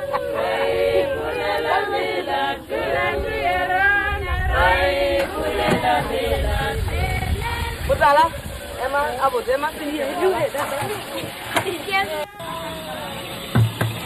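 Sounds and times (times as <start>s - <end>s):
group of people singing: 0.0s - 8.1s.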